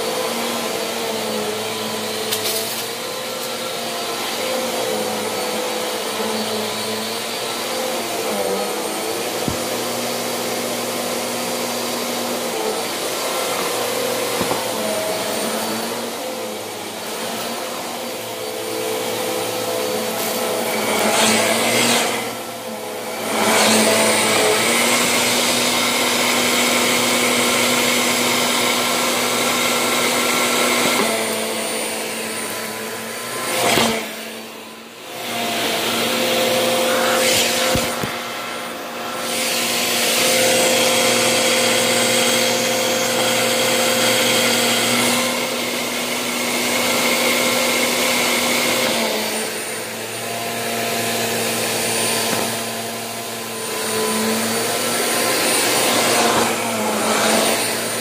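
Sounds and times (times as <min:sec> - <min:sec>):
vacuum cleaner running: 0:00.0 - 0:58.0
vacuum cleaner click: 0:02.2 - 0:03.6, 0:08.8 - 0:17.6, 0:29.2 - 0:34.6, 0:35.2 - 0:41.4, 0:51.0 - 0:58.0.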